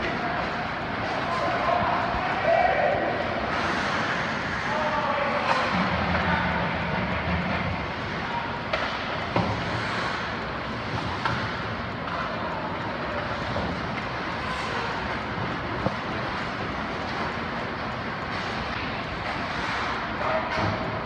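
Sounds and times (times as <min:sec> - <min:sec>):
steady rushing rink noise: 0:00.0 - 0:21.0
stick and puck clacks: 0:06.9 - 0:20.8.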